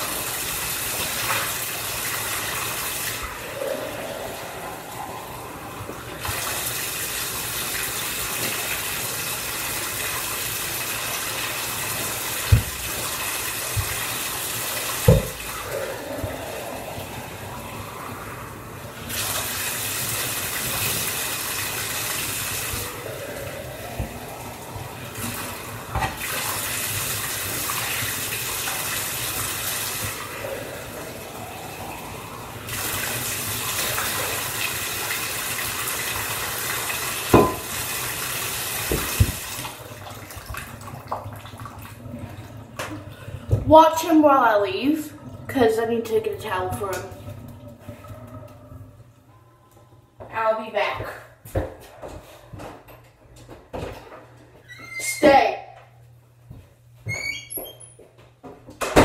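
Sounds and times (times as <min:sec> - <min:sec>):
bathtub tap running: 0:00.0 - 0:44.6.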